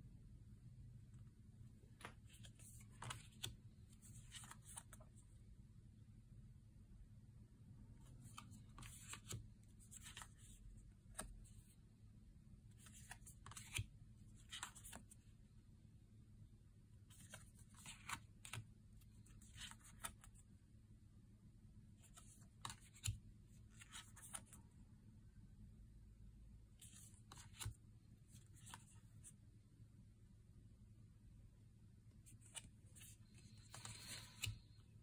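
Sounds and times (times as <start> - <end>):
cards swishing: 32.4 - 34.7.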